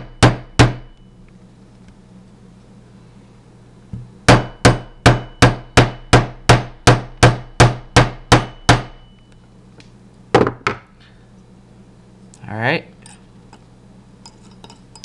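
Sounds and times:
hammer tapping metal punch: 0.0 - 1.0, 4.0 - 9.1.

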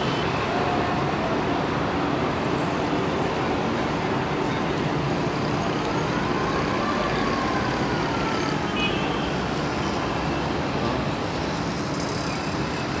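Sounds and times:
city traffic rumble: 0.0 - 13.0
distant siren wailing: 5.7 - 8.8.

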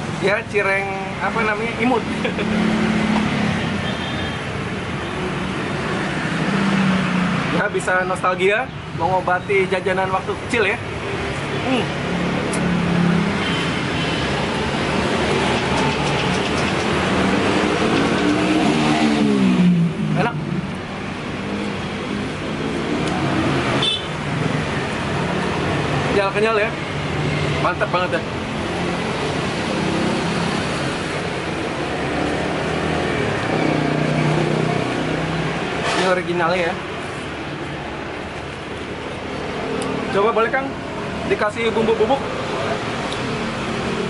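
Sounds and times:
street traffic noise: 0.0 - 44.0
motor vehicle accelerating: 1.3 - 3.8, 5.2 - 7.7, 10.8 - 44.0
vehicle engine humming: 10.8 - 26.1.

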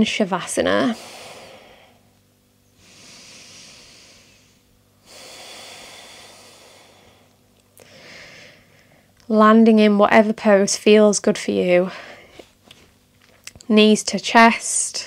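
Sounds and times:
person breathing: 0.9 - 2.1, 2.8 - 9.1.

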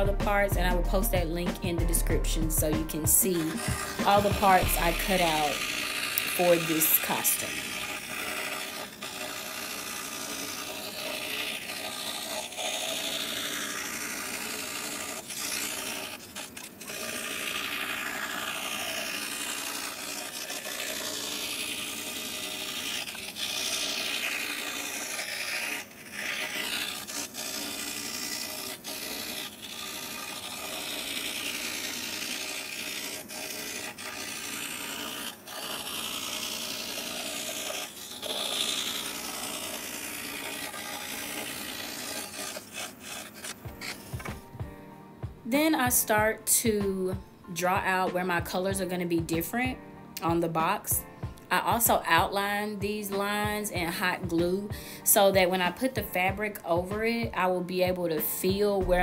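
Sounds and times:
scroll saw cutting plywood: 0.0 - 44.8.

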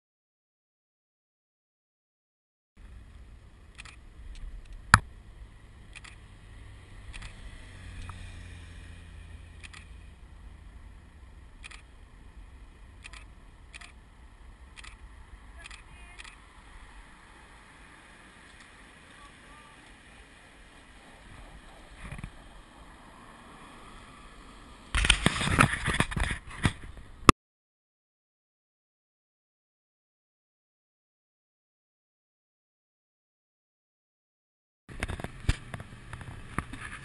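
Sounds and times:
sharp clicks: 3.7 - 5.1, 5.9 - 6.2, 7.1 - 7.4, 9.6 - 10.0, 11.6 - 11.9, 13.0 - 14.0, 14.7 - 15.0, 15.6 - 16.4
wind rumbling on microphone: 8.9 - 27.3.

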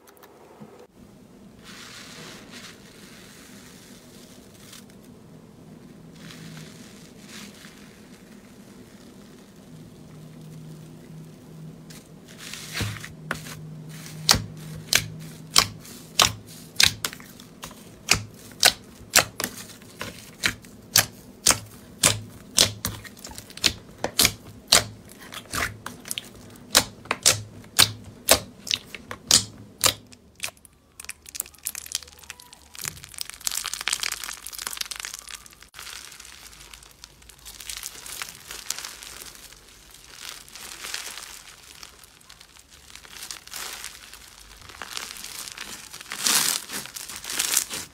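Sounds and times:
crunchy slime crackling: 2.1 - 47.9
slime clicking pops: 20.9 - 30.6.

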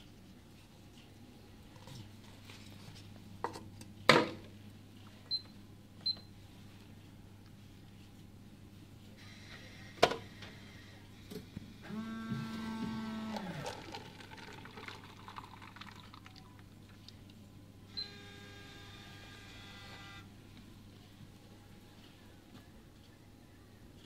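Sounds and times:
vending machine motor hum: 9.2 - 14.1, 17.7 - 20.9
coffee pouring into paper cup: 13.2 - 17.3.

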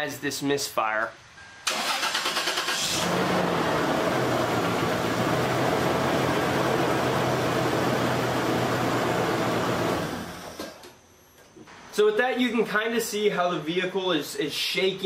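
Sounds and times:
engine starter cranking: 1.7 - 3.3
engine idling with misfire: 1.7 - 10.6.

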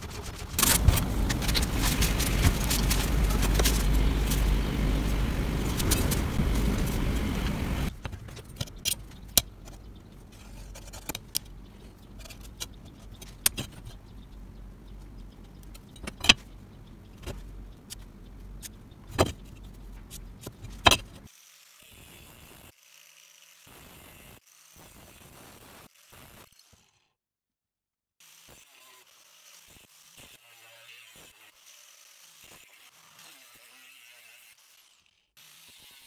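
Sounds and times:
low hum: 0.0 - 21.2
angle grinder cutting steel: 28.2 - 36.0.

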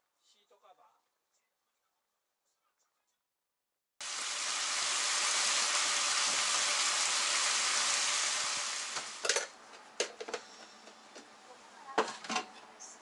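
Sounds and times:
vegetables sizzling in oil: 4.0 - 9.5.

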